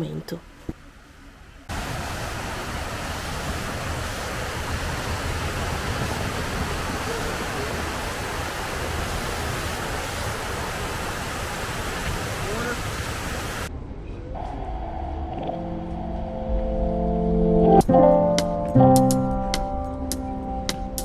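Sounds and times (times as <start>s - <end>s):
water rushing down walls: 1.7s - 13.7s.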